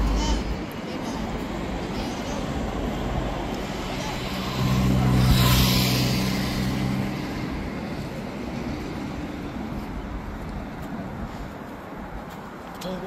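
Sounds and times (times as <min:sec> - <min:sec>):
large vehicle passing: 0:00.0 - 0:10.0.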